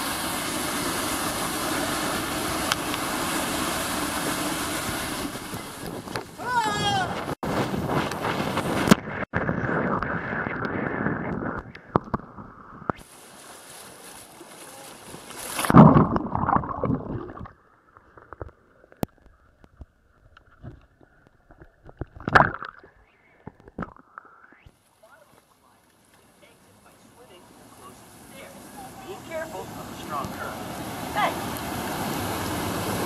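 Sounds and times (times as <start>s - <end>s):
water rushing down waterslide: 0.0s - 7.4s, 13.0s - 17.5s, 27.0s - 33.0s
water sloshing and gurgling: 7.1s - 26.0s.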